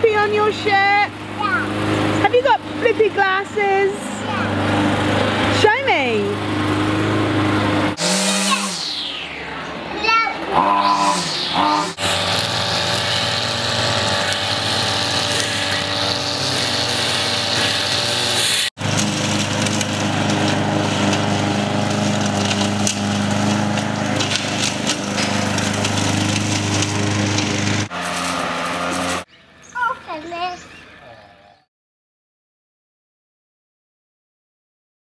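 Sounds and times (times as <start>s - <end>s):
string trimmer engine running: 0.0s - 9.2s, 10.5s - 29.3s
lawn mower engine running: 0.0s - 30.0s.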